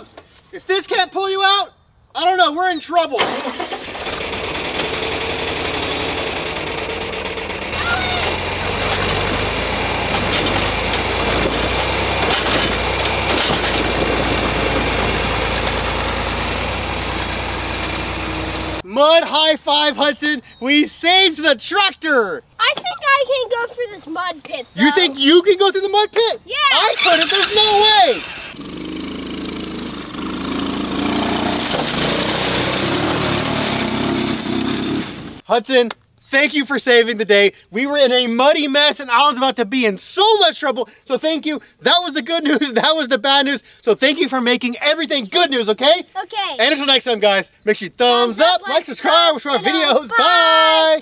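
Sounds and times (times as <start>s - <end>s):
tractor engines running: 3.2s - 18.8s, 26.8s - 35.4s, 47.8s - 51.0s.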